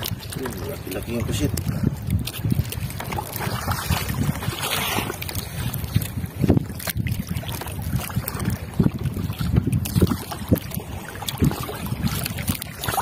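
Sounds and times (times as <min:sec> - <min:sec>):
water sloshing against hull: 0:00.0 - 0:13.0.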